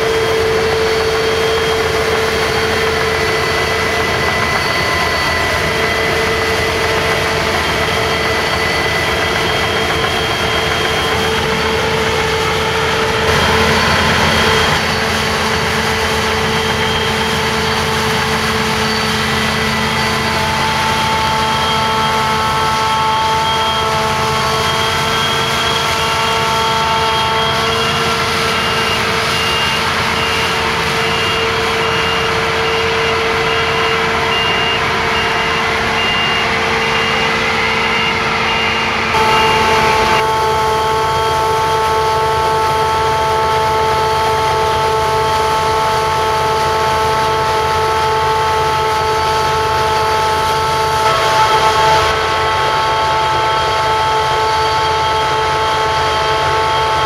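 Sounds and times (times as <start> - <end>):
combine harvester running: 0.0 - 57.0
high machine whine: 0.0 - 57.0
high beeps: 29.4 - 40.3.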